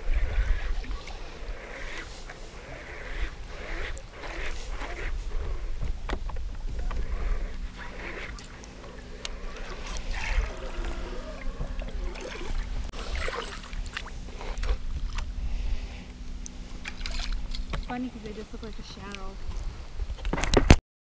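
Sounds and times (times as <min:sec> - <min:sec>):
water splashing: 0:00.0 - 0:15.2
electric motor humming: 0:00.0 - 0:18.9
wind rumble on microphone: 0:00.0 - 0:20.8.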